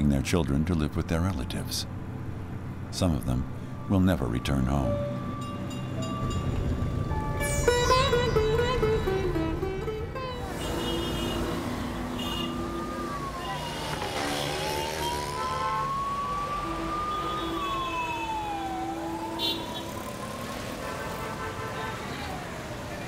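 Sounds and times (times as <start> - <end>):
street traffic: 0.0 - 23.0
siren wailing: 3.4 - 8.4, 11.6 - 20.8
car horn honks: 10.4 - 12.8, 14.4 - 16.0, 20.8 - 22.1.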